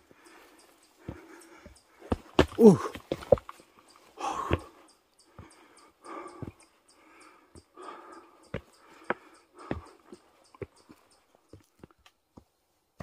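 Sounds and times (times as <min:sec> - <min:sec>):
heavy rhythmic breathing: 0:00.0 - 0:12.0
footfalls on stone steps: 0:01.0 - 0:03.6, 0:04.2 - 0:04.7, 0:08.5 - 0:13.0.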